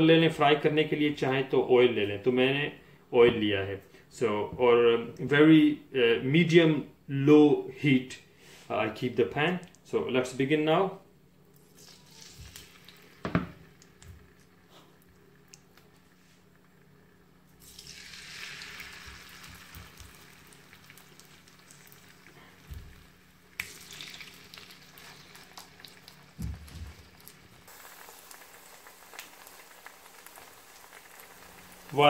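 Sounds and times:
fish fillets sizzling in oil: 11.6s - 14.6s, 17.5s - 32.0s.

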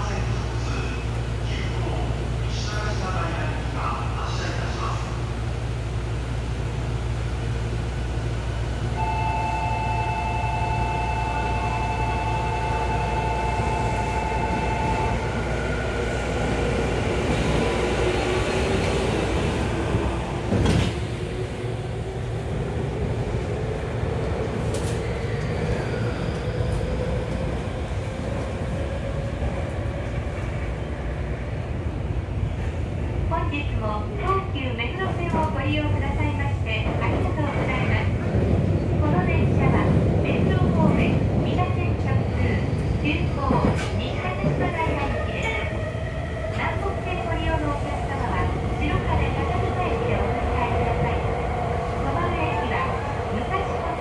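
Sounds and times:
electronic signal tone: 9.0s - 15.2s
train doors shutting: 9.0s - 21.4s, 24.4s - 27.4s, 42.8s - 54.0s.

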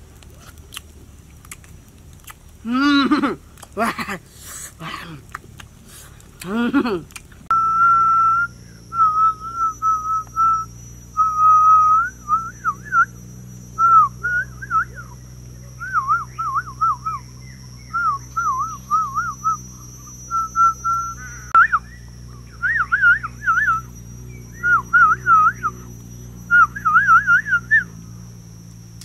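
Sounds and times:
person whistling: 7.5s - 13.2s, 13.8s - 15.2s, 17.9s - 19.6s, 20.3s - 22.0s, 24.6s - 25.8s, 26.5s - 27.9s.

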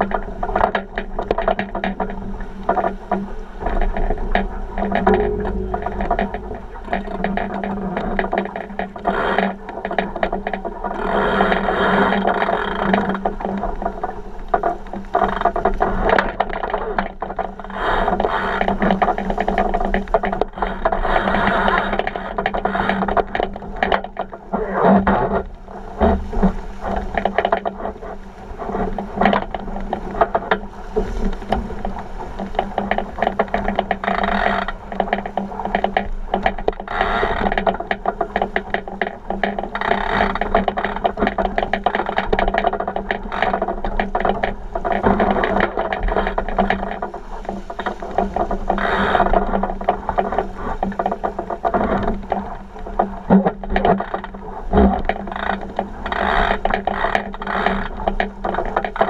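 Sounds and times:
hull fittings rattling and knocking: 0.0s - 59.0s
water rushing along hull: 0.0s - 59.0s
steady low hum: 3.3s - 9.0s.

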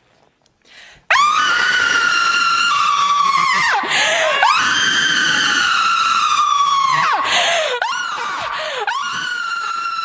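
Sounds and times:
woman screaming: 1.1s - 10.0s
woman gasping for air: 3.9s - 4.4s, 7.2s - 9.0s.

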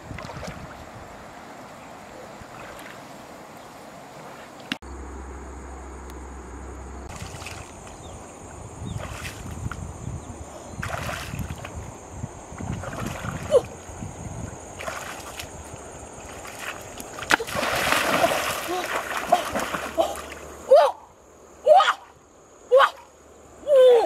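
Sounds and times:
water splashing around legs: 7.1s - 8.3s, 8.9s - 9.8s, 10.8s - 11.8s, 12.6s - 13.9s, 14.6s - 20.6s.

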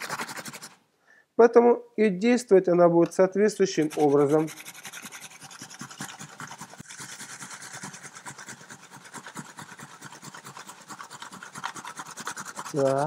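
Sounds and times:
apple grated on metal grater: 3.6s - 13.0s.

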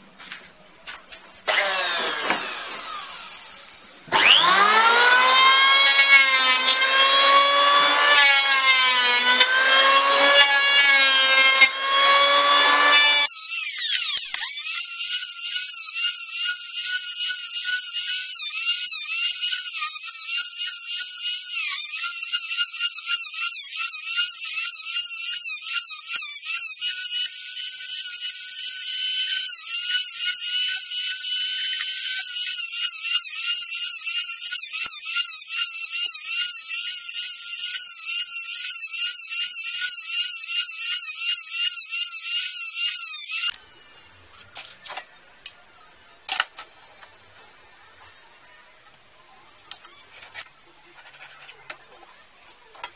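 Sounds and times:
power tool high whine: 1.5s - 43.6s.

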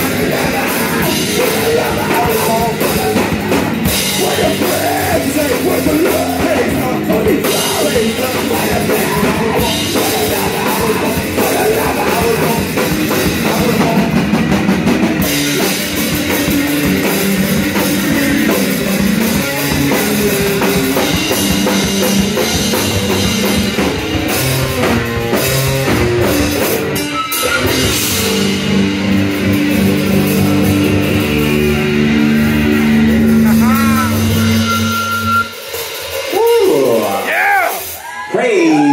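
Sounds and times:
electric guitars: 0.0s - 38.9s
pounding drum kit: 0.0s - 38.9s.

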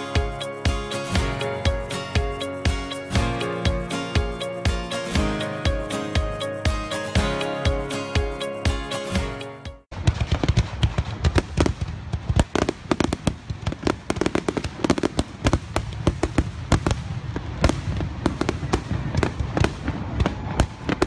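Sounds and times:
fireworks bangs and crackles: 9.9s - 21.0s.

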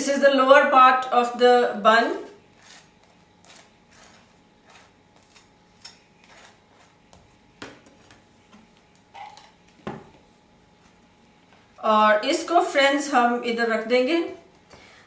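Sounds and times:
knife scraping spreading mayonnaise: 2.5s - 7.1s.

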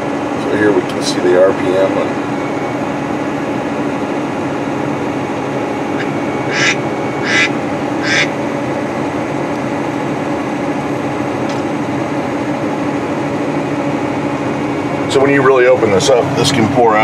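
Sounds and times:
tractor engine drone in cab: 0.0s - 17.0s
short raspy squawks: 6.0s - 8.4s.

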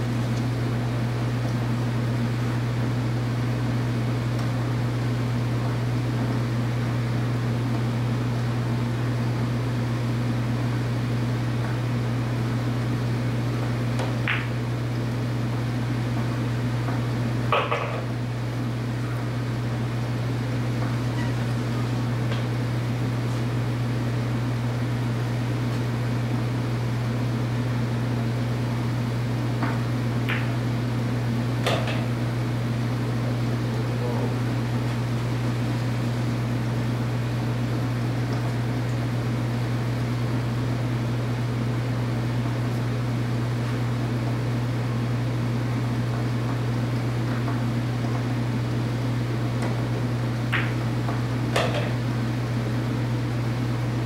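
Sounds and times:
pool balls clicking: 13.6s - 14.6s, 16.1s - 18.2s, 29.6s - 30.7s, 49.5s - 52.0s.

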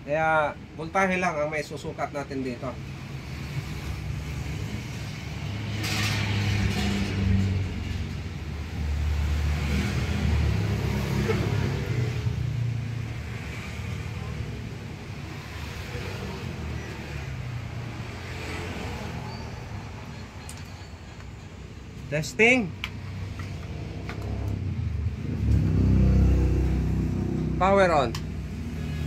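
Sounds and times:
vehicle engine rumble: 19.2s - 29.0s.

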